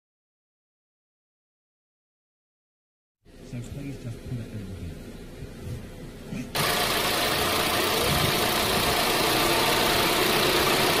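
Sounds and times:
car engine idling: 6.2s - 11.0s.

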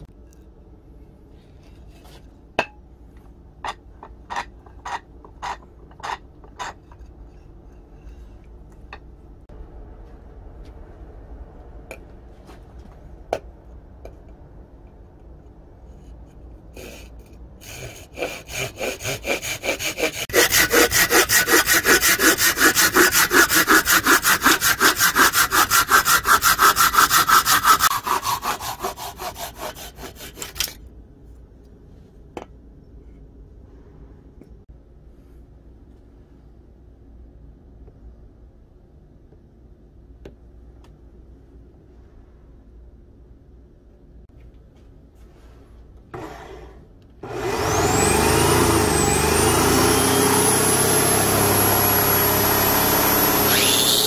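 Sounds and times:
hand saw cutting wood: 16.8s - 30.8s, 47.2s - 54.0s.

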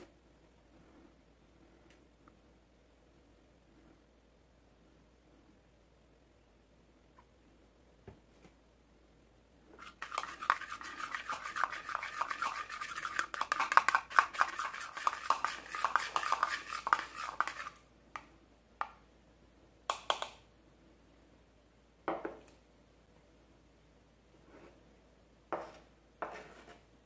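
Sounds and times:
metal spoon scraping a bowl: 9.8s - 17.8s.

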